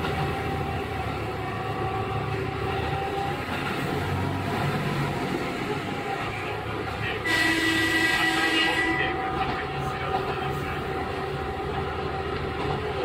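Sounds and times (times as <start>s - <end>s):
diesel engine hum: 0.0s - 13.0s
wheel and rail noise: 0.0s - 13.0s.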